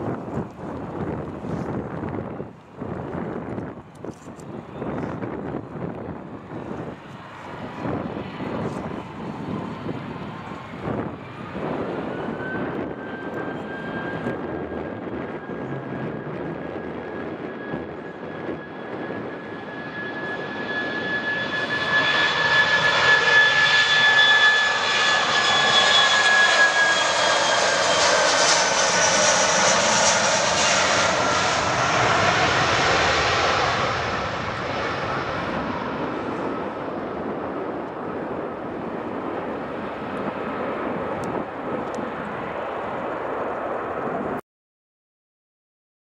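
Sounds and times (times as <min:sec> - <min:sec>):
jet engines taking off: 0:00.0 - 0:44.4.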